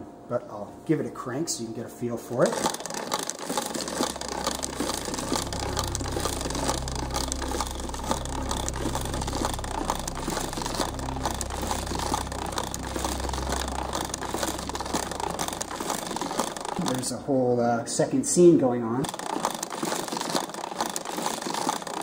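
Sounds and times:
wooden mechanism clattering: 0:02.4 - 0:17.2, 0:19.0 - 0:22.0
low rumble: 0:04.0 - 0:17.3.

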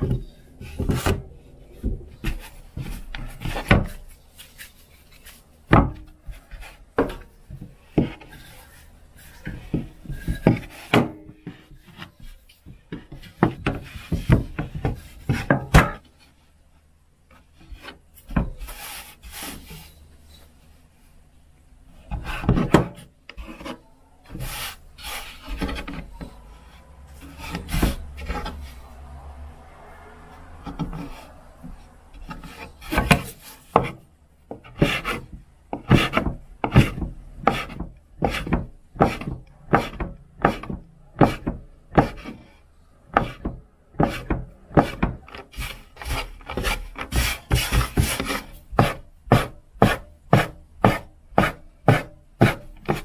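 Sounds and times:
knife scraping on cutting board: 0:44.0 - 0:53.0.

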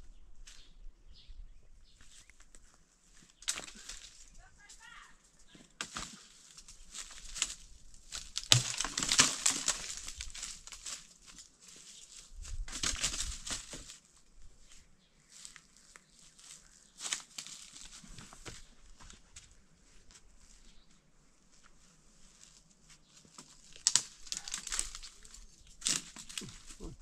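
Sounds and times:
tree branches rustling: 0:01.9 - 0:27.0
branch snapping: 0:03.4 - 0:04.2, 0:05.8 - 0:11.5, 0:12.7 - 0:14.0, 0:23.3 - 0:26.9.

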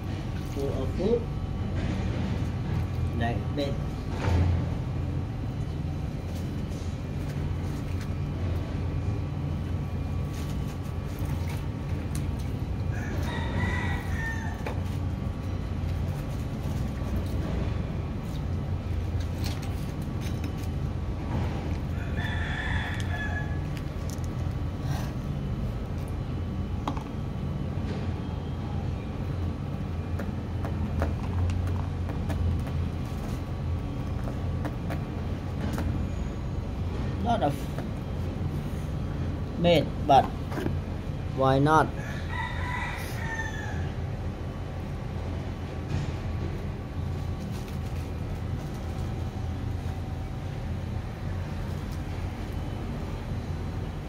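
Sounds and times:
steady low hum: 0:00.0 - 0:42.6, 0:43.2 - 0:54.0
rooster crowing: 0:12.8 - 0:14.8, 0:21.9 - 0:23.8, 0:41.9 - 0:44.1.

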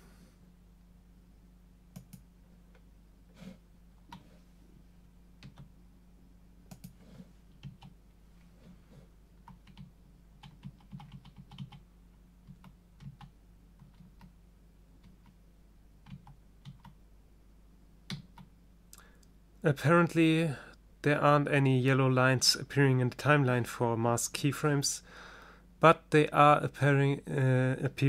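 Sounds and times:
computer keys clicking: 0:01.9 - 0:02.3, 0:05.4 - 0:05.7, 0:06.7 - 0:08.0, 0:09.4 - 0:11.8, 0:12.4 - 0:14.3, 0:16.0 - 0:17.0, 0:18.1 - 0:18.5.

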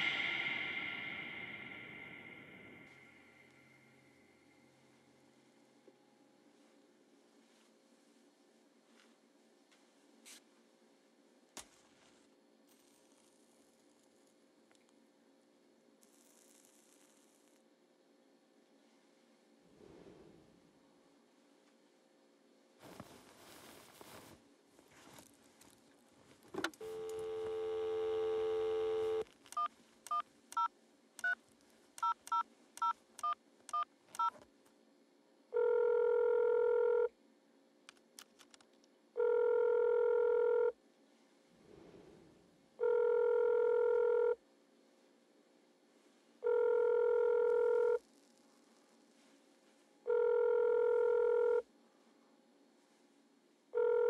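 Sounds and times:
dial tone: 0:26.8 - 0:29.7, 0:35.6 - 0:37.1, 0:39.2 - 0:40.8, 0:42.8 - 0:44.4, 0:46.4 - 0:48.0, 0:50.1 - 0:51.7, 0:53.8 - 0:54.0
telephone ringback tone: 0:35.6 - 0:37.1, 0:39.2 - 0:40.7, 0:42.8 - 0:44.4, 0:46.4 - 0:48.0, 0:50.1 - 0:51.6, 0:53.8 - 0:54.0.

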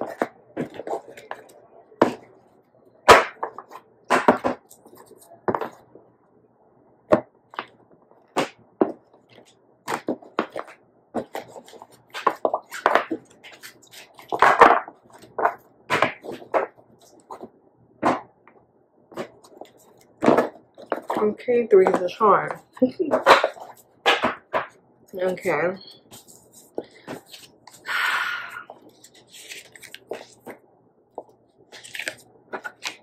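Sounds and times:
cards slapping and snapping: 0:23.1 - 0:24.7, 0:31.7 - 0:33.0.

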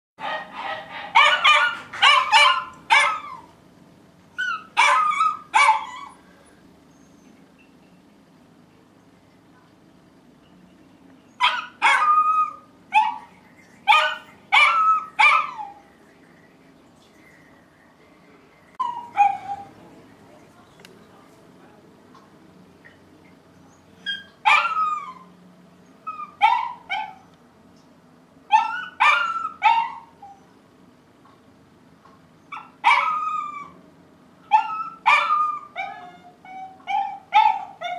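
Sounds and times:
dog barking: 0:00.2 - 0:03.5, 0:04.6 - 0:06.1, 0:11.4 - 0:13.3, 0:13.9 - 0:15.8, 0:28.5 - 0:30.1, 0:34.5 - 0:36.0.

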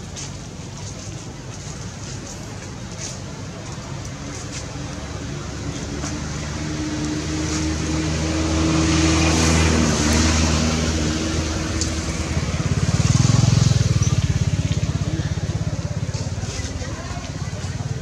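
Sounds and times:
vehicle engine running: 0:08.9 - 0:18.0.

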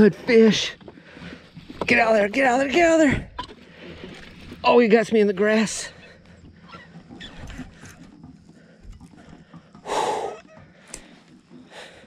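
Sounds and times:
man breathing hard: 0:08.5 - 0:12.0.

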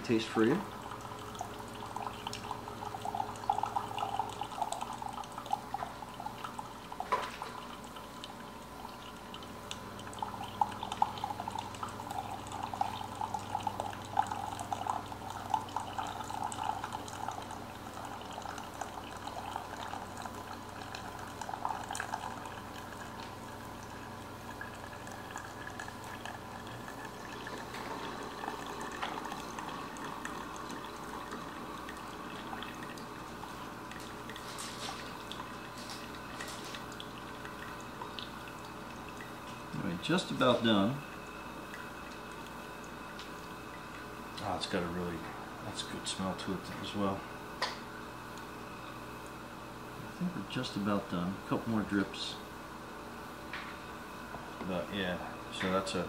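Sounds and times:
low steady hum: 0:00.0 - 0:56.0
hot water bubbling: 0:00.1 - 0:46.6
coffee dripping into mug: 0:00.5 - 0:44.8.

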